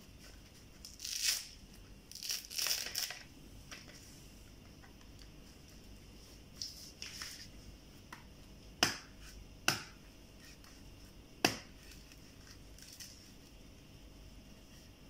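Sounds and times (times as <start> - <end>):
knife chopping coconut husk: 8.8 - 10.0, 11.4 - 11.8.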